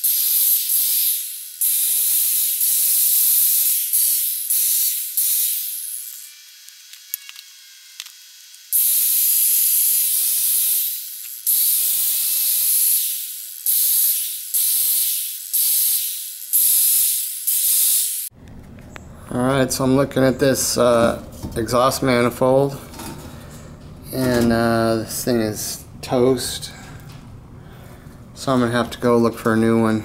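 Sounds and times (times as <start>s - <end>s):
angle grinder grinding steel: 0.0s - 18.3s.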